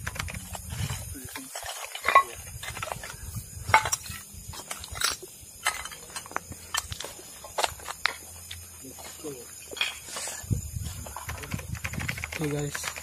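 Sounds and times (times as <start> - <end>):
footsteps crunching on rubble: 0.5 - 11.3
ceramic shards clinking: 1.4 - 3.0, 3.7 - 8.3, 9.7 - 10.4.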